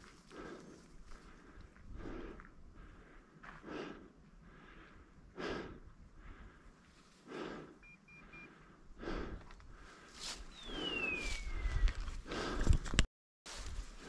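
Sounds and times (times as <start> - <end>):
person breathing hard: 0.3 - 13.0
faint high beeps: 7.8 - 8.5.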